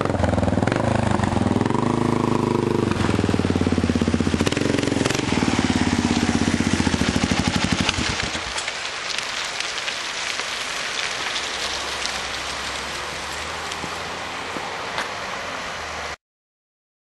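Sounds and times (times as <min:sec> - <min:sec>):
outdoor street hiss: 0:00.0 - 0:16.2
light crackles: 0:06.1 - 0:15.2.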